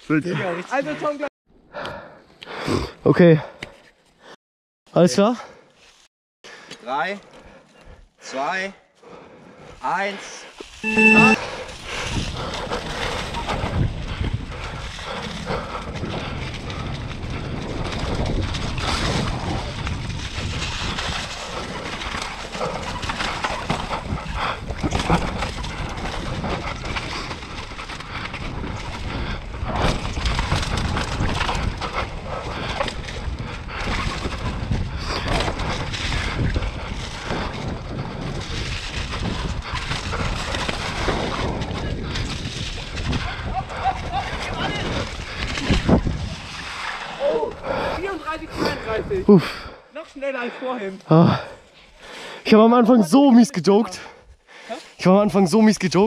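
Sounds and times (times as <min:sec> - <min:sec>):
wind buffeting microphone: 0:11.7 - 0:46.8
bike rattles and knocks: 0:15.9 - 0:43.2.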